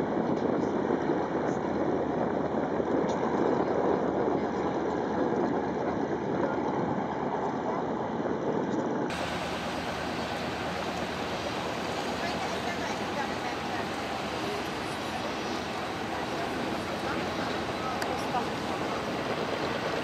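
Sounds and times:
propeller aircraft engine rumble: 9.1s - 20.0s
radial aircraft engines running: 9.1s - 20.0s.

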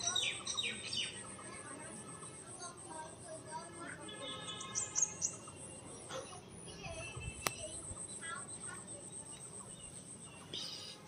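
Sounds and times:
faint bird calls: 4.5s - 11.0s.

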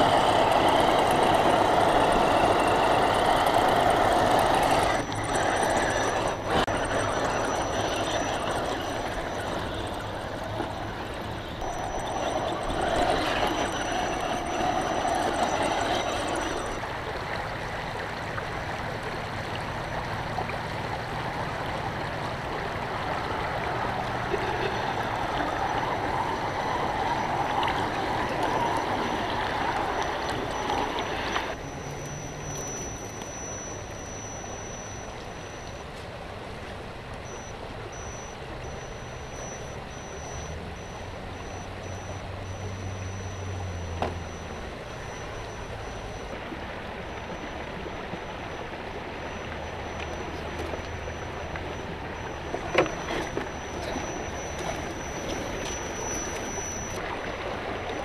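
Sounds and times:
small electric motor: 0.0s - 16.8s, 49.7s - 57.0s
river water rushing and splashing: 39.8s - 58.0s.

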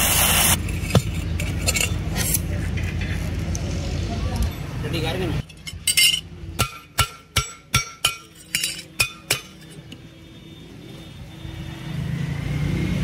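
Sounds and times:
vehicle engine rumble: 0.0s - 10.2s
steel strip clinking on steel plate: 0.7s - 2.4s, 5.4s - 10.0s.

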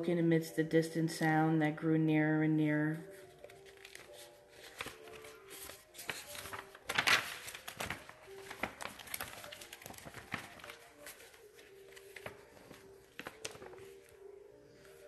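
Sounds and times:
paper rustling and crinkling: 3.0s - 15.0s.

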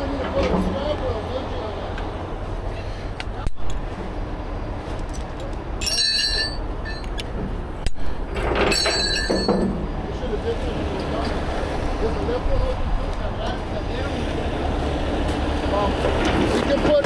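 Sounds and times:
steady low rumble: 0.0s - 16.5s
metal chains clinking: 5.8s - 7.2s, 7.8s - 9.8s.

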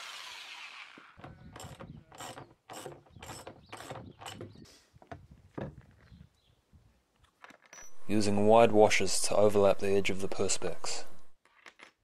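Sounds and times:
electric drill spinning down: 0.0s - 1.2s.

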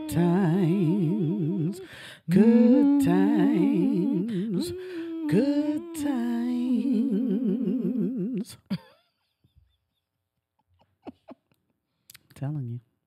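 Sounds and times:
two voices singing in harmony: 0.0s - 8.7s.

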